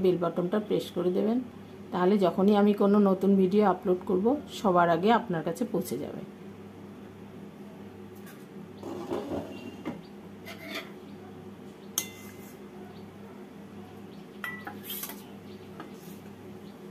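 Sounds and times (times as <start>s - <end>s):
metal spoon clinking on bowl: 12.0s - 12.4s, 14.4s - 15.2s.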